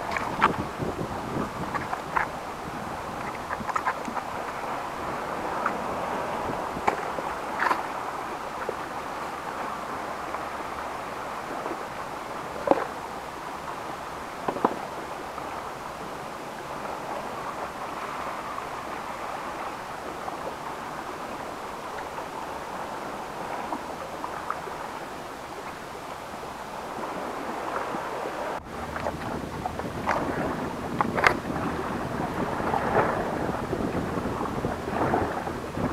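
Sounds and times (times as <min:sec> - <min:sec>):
sea surf on rocky shore: 0:00.0 - 0:35.9
wind: 0:00.0 - 0:35.9.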